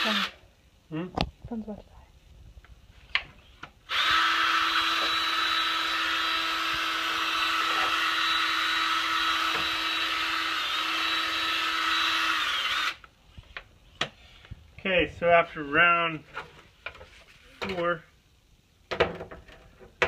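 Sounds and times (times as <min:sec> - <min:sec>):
cordless drill spinning: 0:00.0 - 0:00.3, 0:03.9 - 0:13.1.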